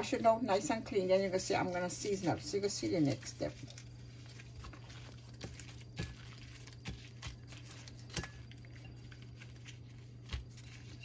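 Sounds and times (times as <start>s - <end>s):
plastic glove crinkles: 0.5s - 11.0s
wet squishes of raw fish: 3.1s - 11.0s.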